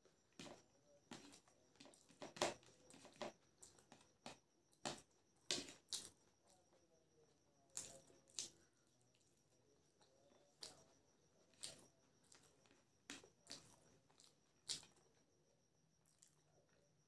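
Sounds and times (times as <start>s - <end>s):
chewing mouth clicks and smacks: 13.4s - 14.9s.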